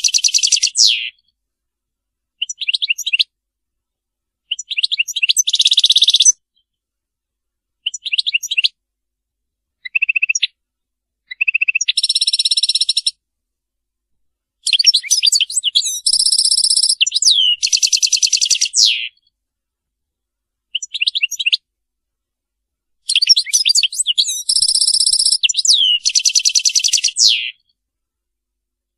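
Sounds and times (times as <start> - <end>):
goldfinch twittering song: 0.0 - 1.2, 4.5 - 6.4, 11.3 - 13.2, 14.7 - 19.2, 20.8 - 21.6, 23.1 - 27.6.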